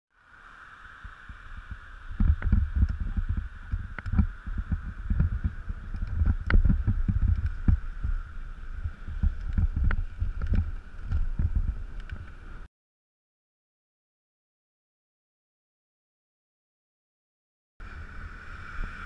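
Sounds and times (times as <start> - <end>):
wind buffeting microphone: 0.9 - 12.7
bike knocks and rattles: 2.2 - 8.2.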